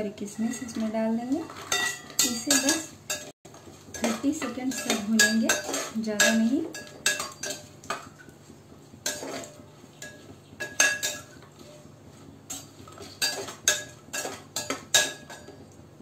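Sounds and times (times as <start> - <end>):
metal ladle scraping a pot: 0.2 - 3.3, 3.9 - 7.7, 9.0 - 11.9.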